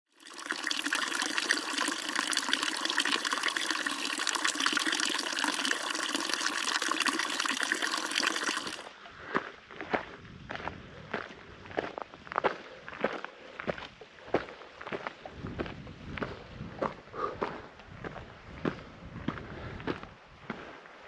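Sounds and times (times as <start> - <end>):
fountain water splashing into trough: 0.1 - 8.9.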